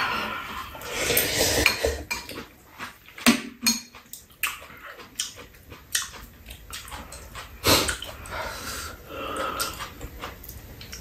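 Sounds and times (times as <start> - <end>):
cutlery clinking against bowls: 1.2 - 2.5, 3.2 - 4.2.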